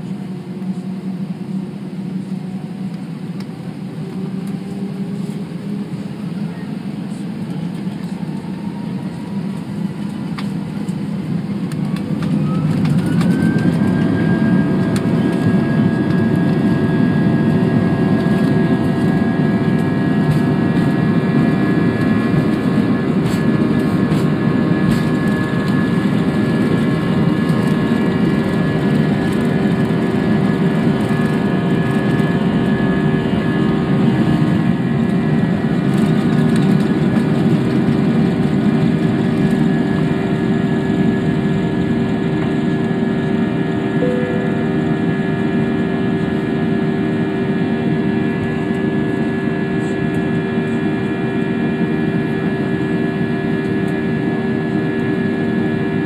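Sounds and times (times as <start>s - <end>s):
jet engines whining: 0.0s - 56.0s
wheels rumbling on runway: 9.1s - 43.4s.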